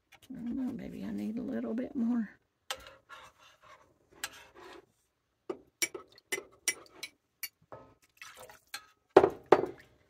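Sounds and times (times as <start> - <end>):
liquid splashing: 8.0 - 8.8.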